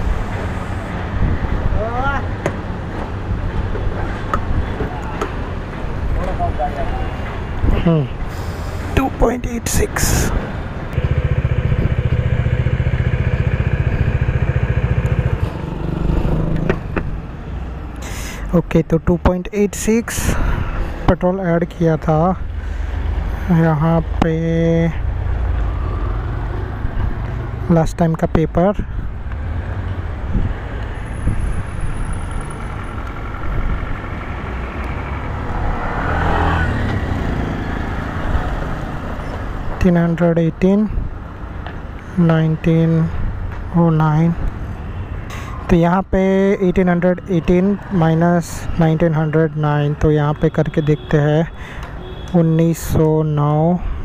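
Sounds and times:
traffic rumble: 0.0 - 54.0
motorcycle engine running at low revs: 11.0 - 17.1
vehicle passing close by: 11.0 - 17.4, 30.3 - 39.2.

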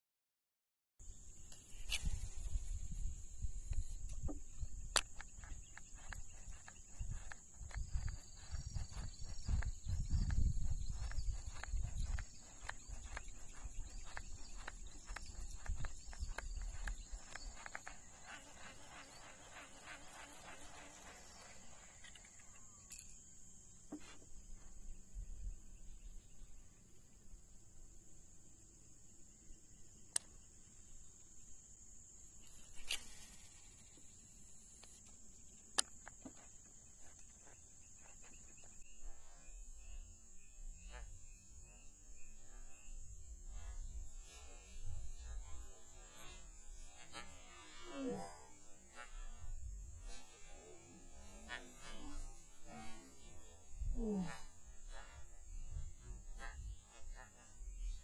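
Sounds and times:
high-pitched insect drone: 1.0 - 27.0, 29.6 - 58.0
faint ticks: 3.6 - 23.2.

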